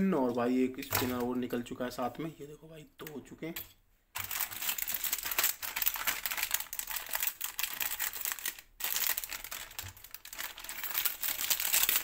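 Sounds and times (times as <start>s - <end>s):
plastic packet crinkling: 4.2s - 12.0s
scissors cutting plastic: 9.2s - 12.0s.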